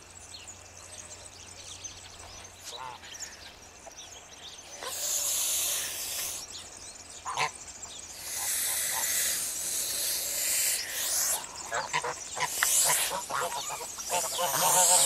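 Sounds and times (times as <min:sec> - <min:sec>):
geese hissing: 0:04.8 - 0:06.5, 0:08.1 - 0:15.0
goose call: 0:08.2 - 0:15.0.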